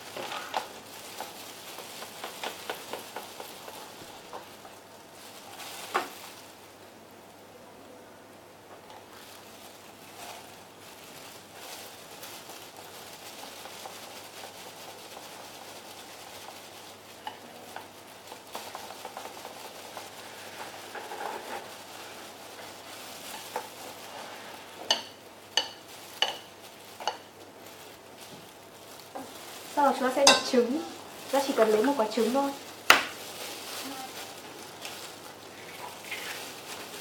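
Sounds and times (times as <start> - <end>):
chopsticks whisking batter: 0.1 - 4.7, 12.4 - 27.3, 29.1 - 32.6
chopsticks tapping a bowl: 24.9 - 27.3, 30.2 - 30.6.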